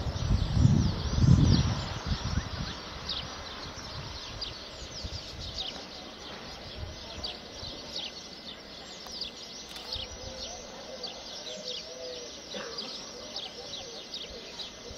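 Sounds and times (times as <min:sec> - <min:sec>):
small birds chirping: 0:00.0 - 0:14.9.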